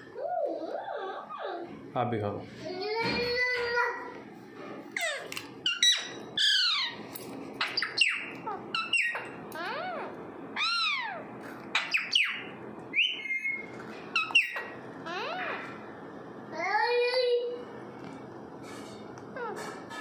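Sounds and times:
parakeets squawking and whistling: 0.0s - 1.8s, 4.9s - 15.8s, 19.3s - 20.0s.

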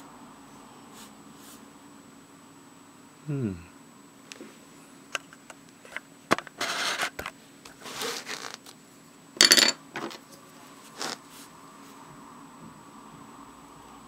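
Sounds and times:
pen and sketchbook scraping: 6.6s - 7.2s, 7.8s - 8.6s
clattering scrape: 7.8s - 8.6s.

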